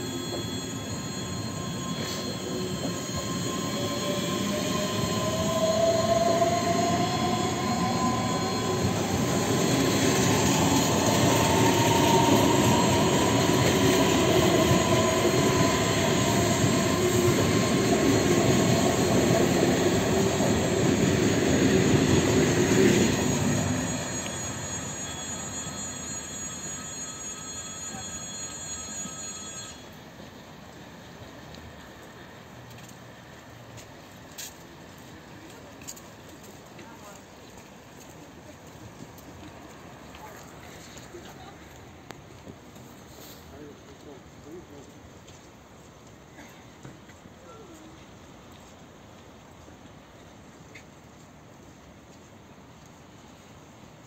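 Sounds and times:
traction motors whining: 0:00.0 - 0:30.0
train wheels rumbling on rail: 0:00.0 - 0:53.8.

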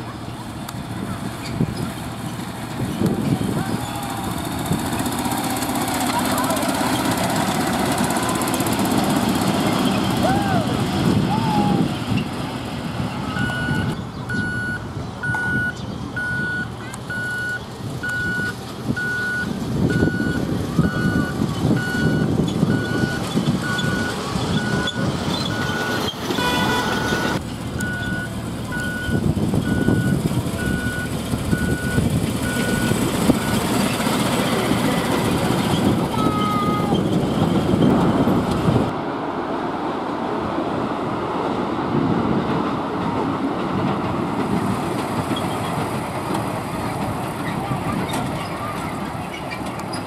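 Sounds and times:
heavy vehicle engine rumble: 0:00.0 - 0:50.0
electronic warning beeper: 0:13.4 - 0:33.6.

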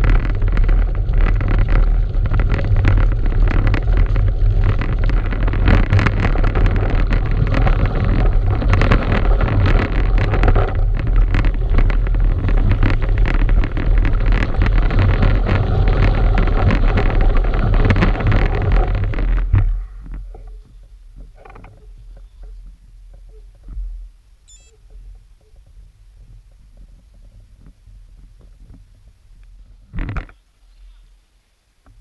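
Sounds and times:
tyres rolling on gravel: 0:00.0 - 0:22.7
bike rattling: 0:00.0 - 0:24.0
wind rumbling on microphone: 0:00.0 - 0:32.0.

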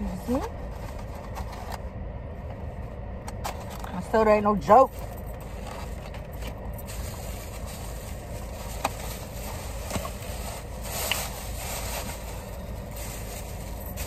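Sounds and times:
car interior rumble: 0:00.0 - 0:14.0
plastic bag rustling: 0:05.1 - 0:14.0.

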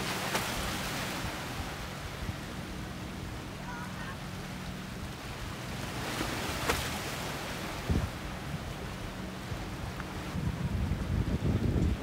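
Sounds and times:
sharp splash: 0:00.0 - 0:01.2, 0:05.9 - 0:07.4
water splashing against rocks: 0:00.0 - 0:01.6, 0:05.9 - 0:08.1
motor boat engine drone: 0:00.0 - 0:12.0.

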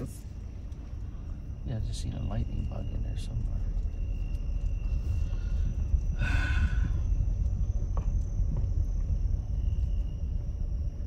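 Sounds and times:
car cabin rumble: 0:00.0 - 0:11.0
person exhaling: 0:06.2 - 0:07.1.

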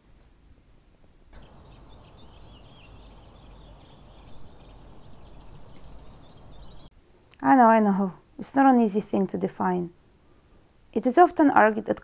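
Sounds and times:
low background rumble: 0:01.2 - 0:07.0
birds chirping: 0:01.4 - 0:06.9.

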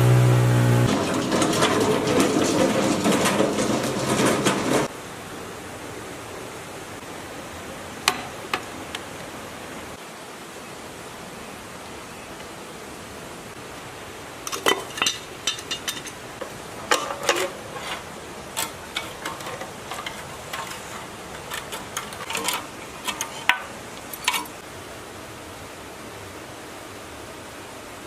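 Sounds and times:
hand tool clinking on metal: 0:14.5 - 0:16.2, 0:16.8 - 0:24.6.

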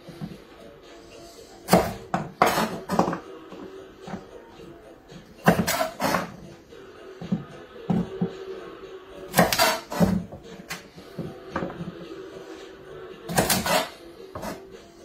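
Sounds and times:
knife chopping on wooden board: 0:01.7 - 0:03.2, 0:05.4 - 0:06.3, 0:09.3 - 0:10.3, 0:13.3 - 0:14.6.

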